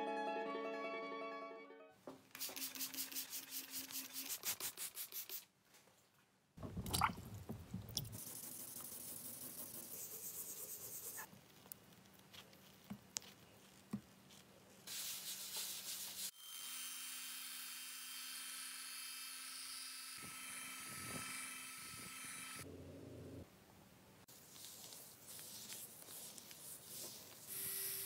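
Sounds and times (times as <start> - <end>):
cloth wiping car paint: 24.3 - 27.5.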